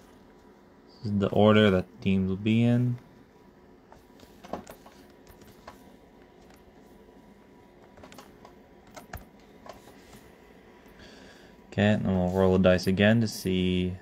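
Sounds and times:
laptop keys clicking: 0:07.8 - 0:09.8.

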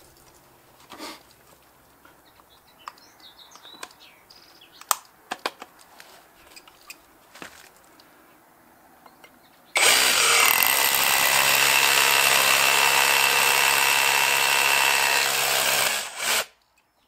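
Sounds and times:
rotary hammer drilling: 0:09.8 - 0:16.5.

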